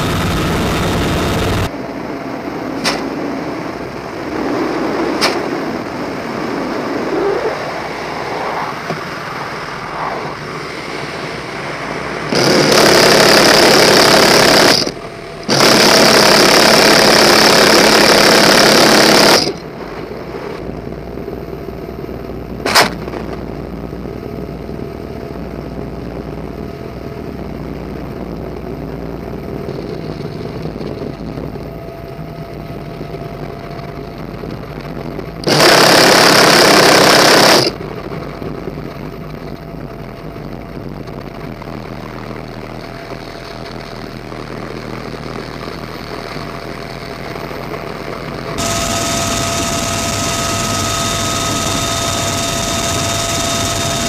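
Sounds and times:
minigun firing buzz: 0.0s - 1.7s, 12.3s - 19.7s, 35.4s - 37.8s, 48.6s - 54.0s
helicopter engine and rotor noise: 0.0s - 54.0s.

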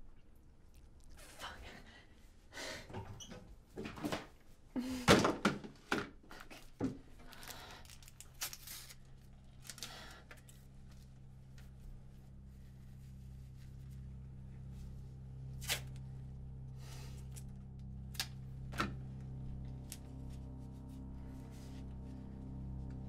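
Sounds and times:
low steady hum: 0.0s - 23.0s
kitchen items thunking and clattering: 4.9s - 6.2s.

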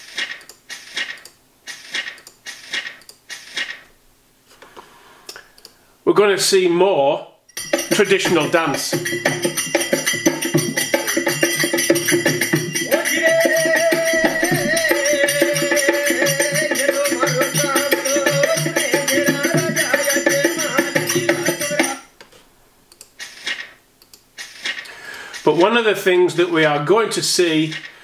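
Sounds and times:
jingling rattling percussion: 7.5s - 22.1s
held melody line: 7.6s - 22.1s.

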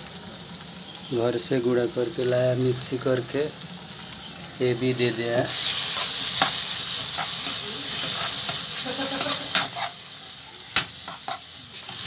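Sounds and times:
food sizzling in hot oil: 0.0s - 12.0s
spatula scraping metal pan: 5.5s - 10.0s.

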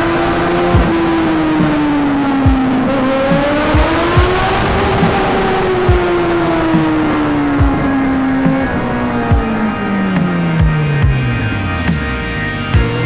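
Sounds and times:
motorcycle engine cruising: 0.0s - 13.0s
short low thumps: 7.6s - 12.2s.

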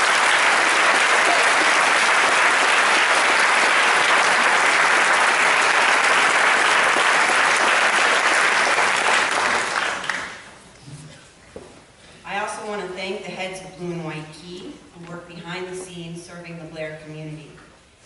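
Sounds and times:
large audience applauding: 0.0s - 10.5s.

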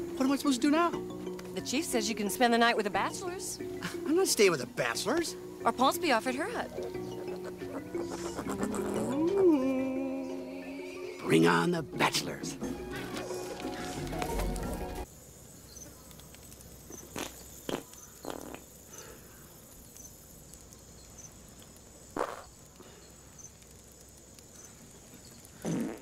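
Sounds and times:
film score music: 0.0s - 15.1s
crickets chirping: 0.0s - 26.0s
farts: 17.0s - 18.7s, 22.2s - 22.5s, 25.6s - 26.0s.

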